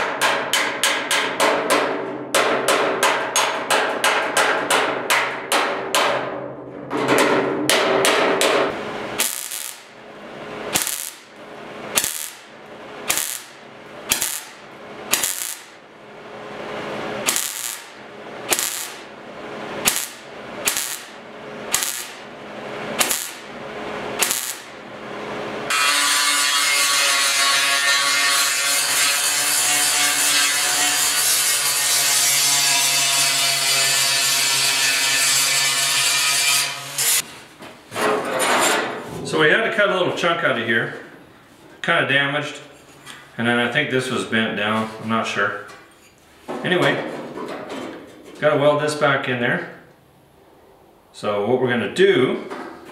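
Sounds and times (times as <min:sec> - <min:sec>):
hammer striking sheet steel: 0:00.0 - 0:10.0, 0:10.7 - 0:15.8, 0:17.2 - 0:19.2, 0:19.8 - 0:22.3, 0:23.0 - 0:23.6, 0:24.2 - 0:24.8, 0:25.7 - 0:37.3
welder crackling: 0:09.0 - 0:16.0, 0:16.6 - 0:25.0
angle grinder grinding: 0:09.2 - 0:10.0, 0:10.7 - 0:11.3, 0:12.0 - 0:12.5, 0:13.1 - 0:15.8, 0:17.2 - 0:19.1, 0:19.8 - 0:22.2.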